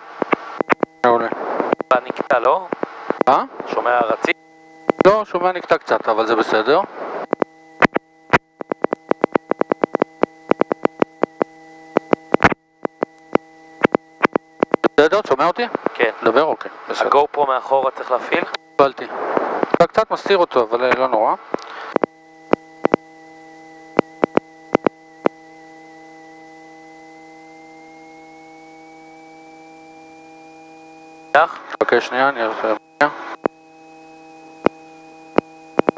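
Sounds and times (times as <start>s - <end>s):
electrical crackle: 0.0s - 16.1s, 18.2s - 23.0s
steady multi-tone electrical hum: 0.0s - 35.9s
rapid interference clicking: 0.1s - 5.2s, 7.1s - 16.0s, 18.3s - 23.1s, 23.9s - 25.4s, 33.4s - 33.6s, 34.6s - 35.9s.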